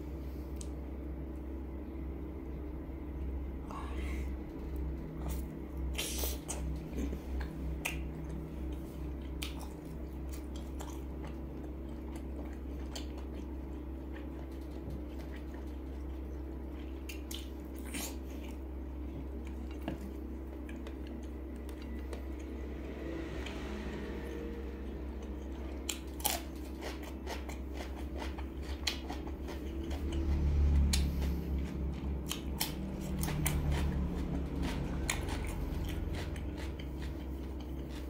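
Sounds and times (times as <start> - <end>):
steady low hum: 0.0 - 38.0
chewing and biting sausage: 4.7 - 22.6, 25.2 - 38.0
wet mouth sounds: 5.2 - 8.1.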